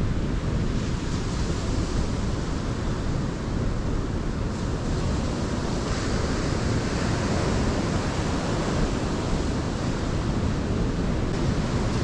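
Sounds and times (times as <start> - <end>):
wind on microphone: 0.0 - 12.0
ocean surf breaking: 4.5 - 12.0.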